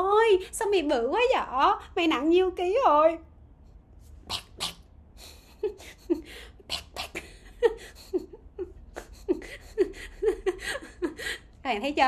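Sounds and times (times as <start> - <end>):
woman giggling: 4.5 - 11.5.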